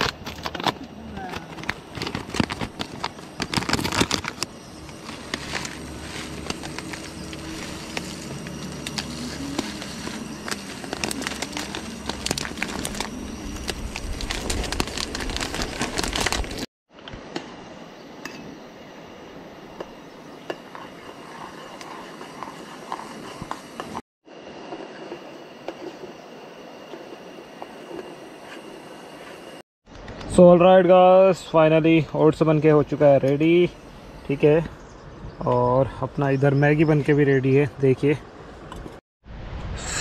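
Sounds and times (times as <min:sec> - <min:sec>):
plastic packet crinkling: 0:01.4 - 0:16.7.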